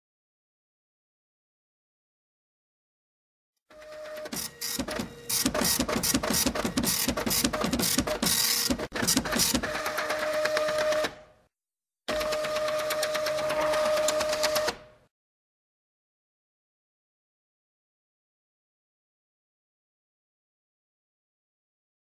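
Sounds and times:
printer whirring hum: 0:03.8 - 0:11.3, 0:12.1 - 0:15.0
printer mechanism rattling: 0:04.1 - 0:11.1.

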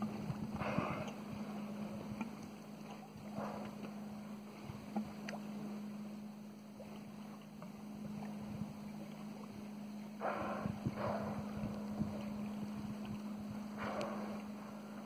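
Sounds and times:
faint wind: 0:00.0 - 0:15.0
steady low hum aboard boat: 0:00.0 - 0:15.0
water noise: 0:00.0 - 0:15.0
faint ticks: 0:13.0 - 0:14.6.

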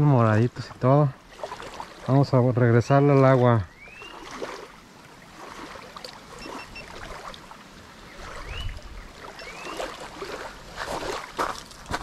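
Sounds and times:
small waves lapping on gravel: 0:00.3 - 0:12.0
wind rumble on microphone: 0:08.1 - 0:09.3.

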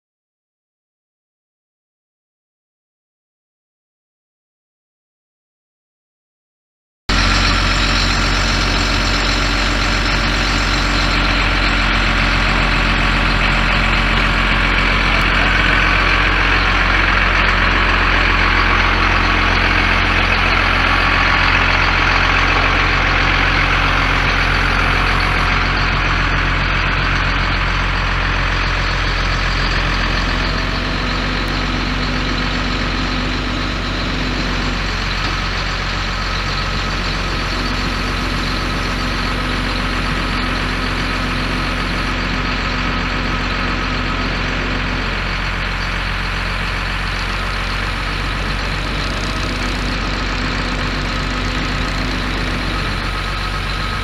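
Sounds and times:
diesel truck engine running: 0:07.1 - 0:54.0.

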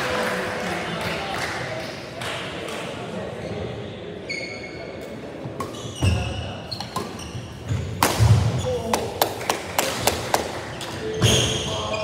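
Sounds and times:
shoes squeaking: 0:04.2 - 0:05.0, 0:05.6 - 0:08.9
racket hitting shuttlecock: 0:07.9 - 0:10.6.

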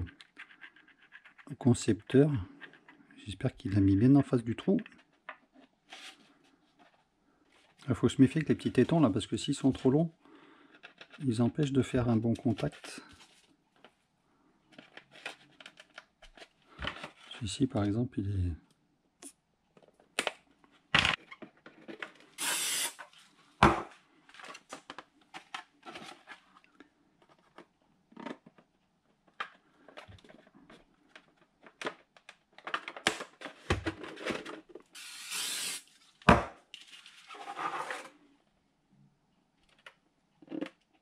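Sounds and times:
plastic parts knocking and clicking: 0:27.2 - 0:34.9.

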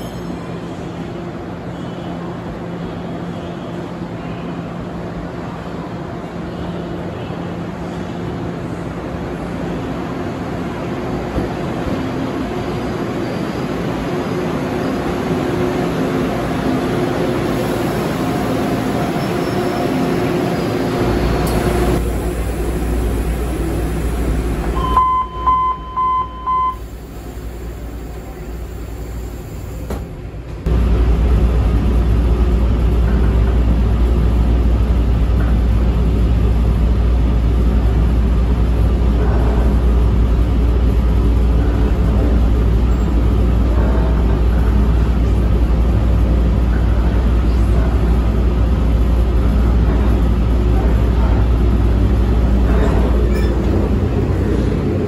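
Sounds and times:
train pulling into platform: 0:00.0 - 0:55.0
train rumbling at speed: 0:00.0 - 0:55.0
door-closing warning beeps: 0:24.8 - 0:26.8.

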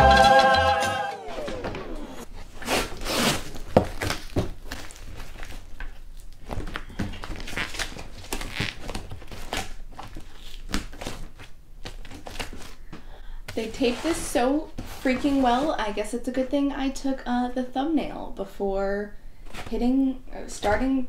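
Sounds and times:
packing tape ripping off cardboard: 0:02.3 - 0:12.9
tape crinkling in hand: 0:02.5 - 0:13.0.

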